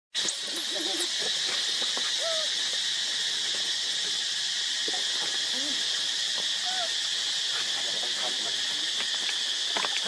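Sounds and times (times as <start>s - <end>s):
high insect drone: 0.2s - 10.0s
baby monkey calls: 2.1s - 2.9s, 6.6s - 7.0s.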